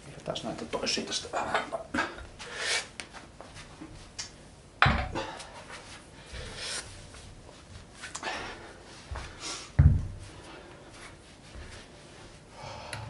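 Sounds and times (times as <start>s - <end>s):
heavy thump: 9.8s - 10.2s.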